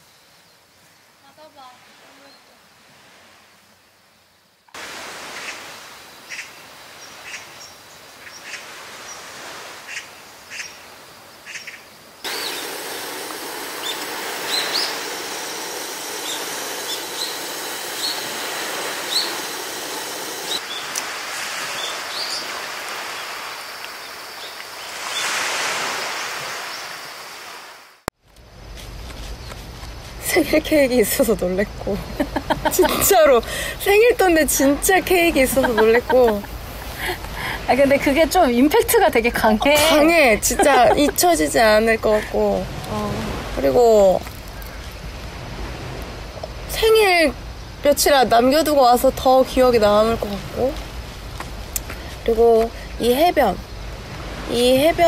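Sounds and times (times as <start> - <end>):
surf rushing: 4.8 - 7.5, 12.2 - 28.1, 30.2 - 55.0.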